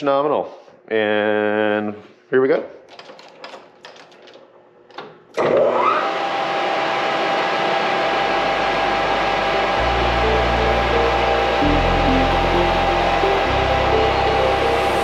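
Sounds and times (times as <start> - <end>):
metal lathe motor running: 5.4 - 15.0.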